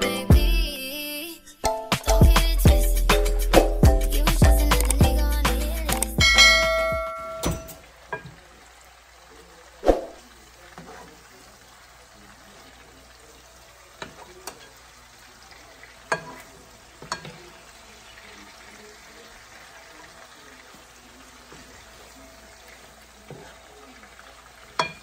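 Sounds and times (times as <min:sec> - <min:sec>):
background music: 0:00.0 - 0:07.7
chicken frying in a pan: 0:06.2 - 0:25.0.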